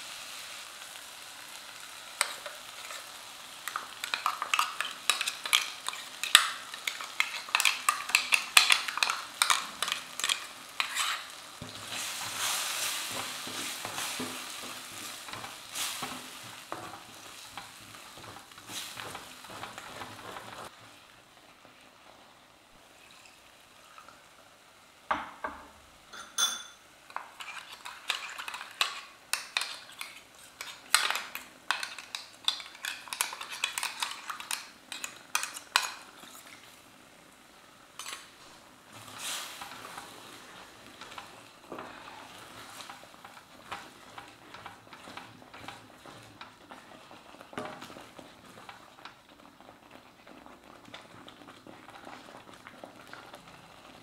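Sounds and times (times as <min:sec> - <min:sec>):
faint sizzle of frying: 0:00.0 - 0:54.0
spoon clinking and scraping in pan: 0:02.2 - 0:12.4, 0:26.1 - 0:36.6, 0:38.0 - 0:38.3.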